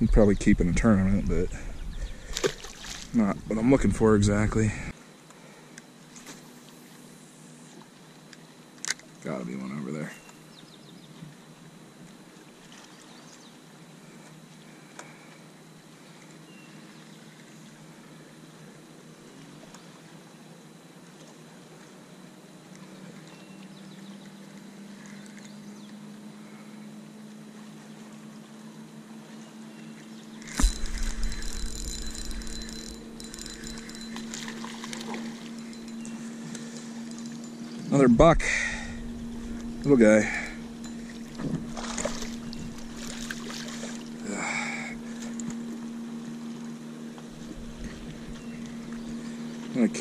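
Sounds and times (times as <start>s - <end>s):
wind and water hiss: 0.0s - 23.8s, 26.0s - 50.0s
electric motor humming: 30.5s - 49.8s.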